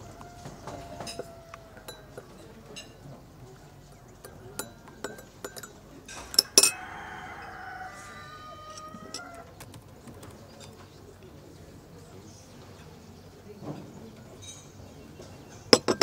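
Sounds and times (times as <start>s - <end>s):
wavering animal call: 0.0s - 2.6s.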